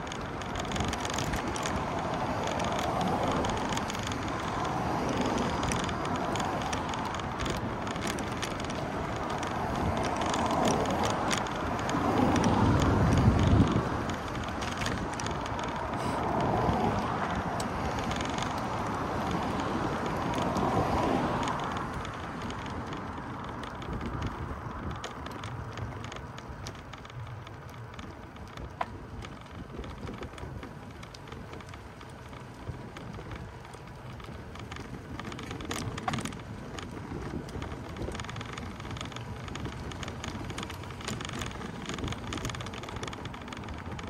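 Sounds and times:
vehicle passing: 0.0 - 28.0
distant traffic hum: 0.0 - 44.0
faint clicks: 0.0 - 44.0.

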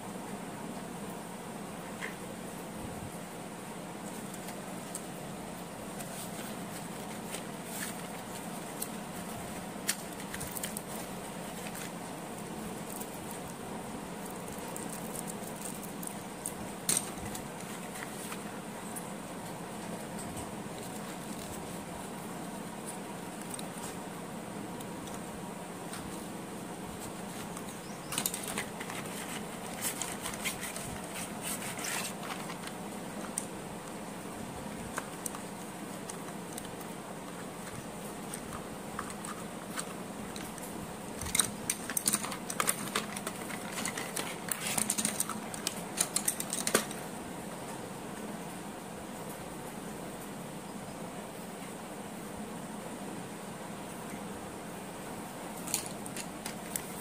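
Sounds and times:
steady background hum: 0.0 - 57.0
pencils clicking in cardboard box: 6.0 - 12.0, 27.3 - 34.0, 37.6 - 47.0, 55.6 - 57.0.

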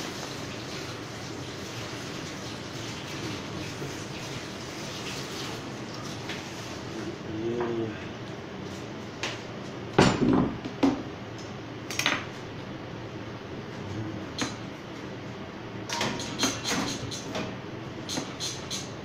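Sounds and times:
kitchen utensils and dishes clattering: 15.9 - 17.4.

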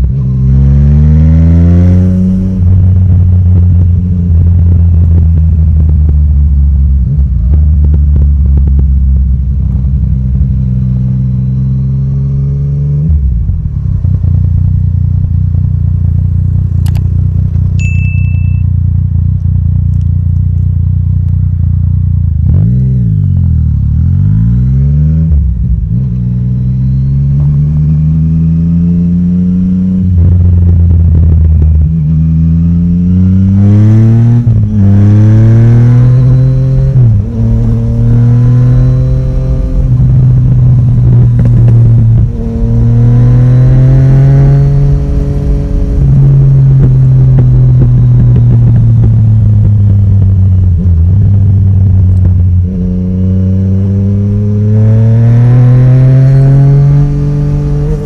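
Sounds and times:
motorcycle engine accelerating: 0.0 - 58.0
brief high beep: 17.8 - 18.8.

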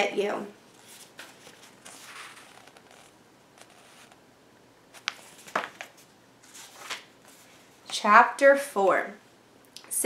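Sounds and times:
book pages rustling: 0.7 - 4.2, 5.0 - 7.6.

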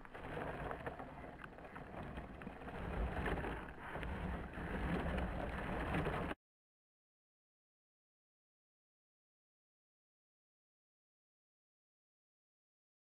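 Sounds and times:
wheels rolling over grass: 0.0 - 6.4.

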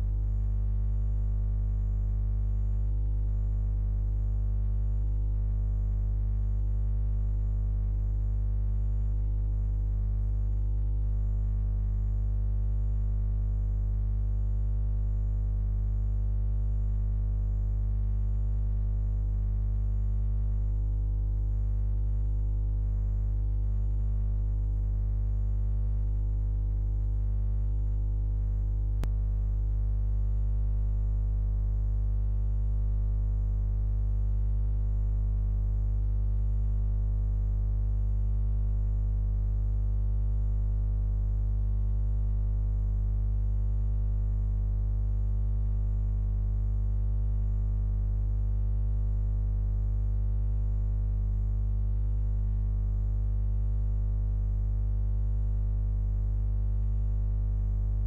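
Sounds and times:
low hum: 0.0 - 40.6.

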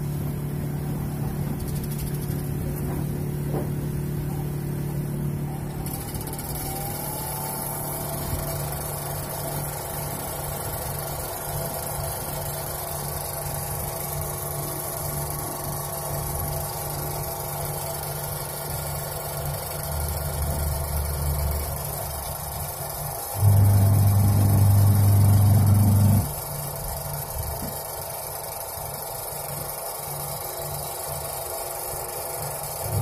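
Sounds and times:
washing machine motor hum: 0.0 - 33.0
motor whine rising in pitch: 4.2 - 17.8, 19.9 - 26.5.

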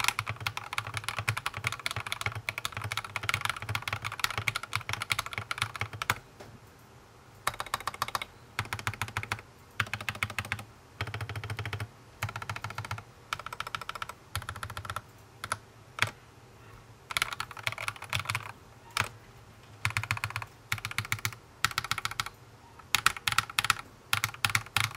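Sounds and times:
mechanical keyboard typing: 0.0 - 6.3, 7.4 - 16.2, 17.1 - 24.9.

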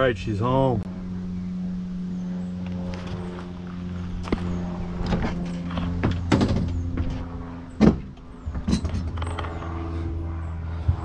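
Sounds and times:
motor hum: 0.0 - 11.0
clunks and knocks in truck bed: 5.0 - 7.2, 7.8 - 9.2.

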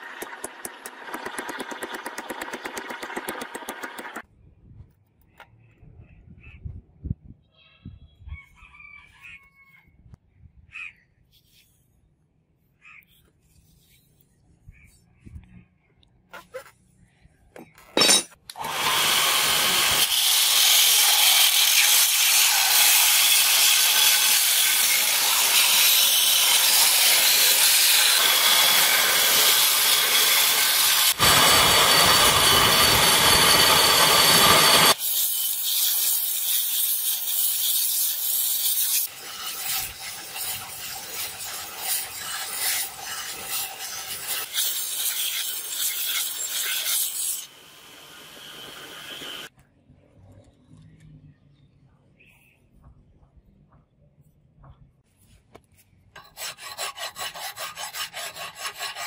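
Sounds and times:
belt grinder grinding steel: 0.0 - 4.2, 18.0 - 47.6, 56.2 - 59.0.

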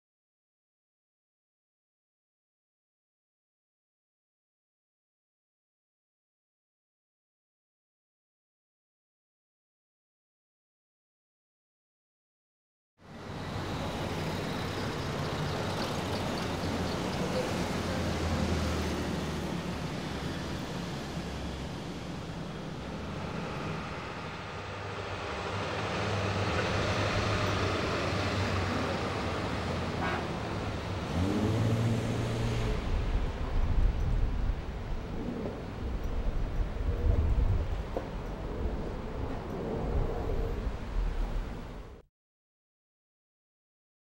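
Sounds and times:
street traffic hum: 13.0 - 42.0
vehicle passing close: 13.3 - 35.9.

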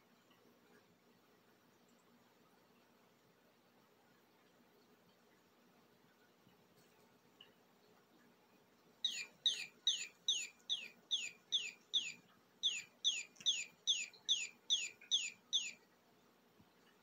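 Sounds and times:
toy bird chirping: 9.0 - 15.8.

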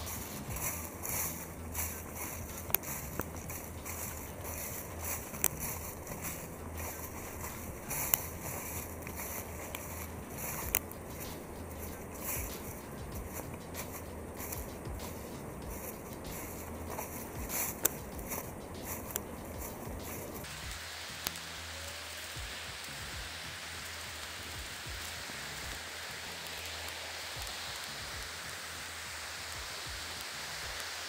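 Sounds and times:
clicks and rustles: 0.0 - 20.5
river rapids rushing: 0.0 - 31.0.

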